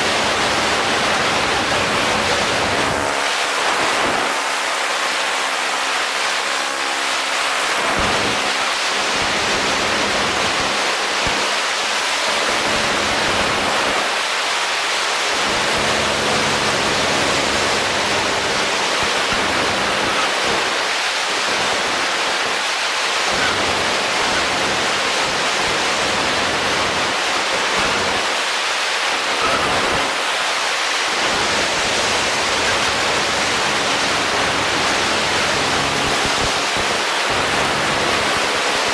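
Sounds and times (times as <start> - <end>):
faint engine drone: 0.0 - 28.3.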